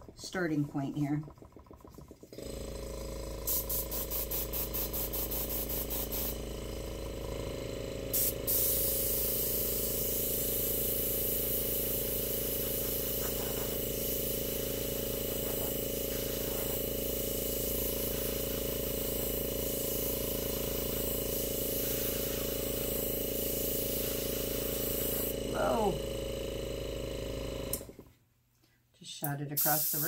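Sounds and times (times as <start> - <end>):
air compressor humming: 0.0 - 28.2
airbrush hissing air: 3.4 - 26.2, 29.6 - 30.0.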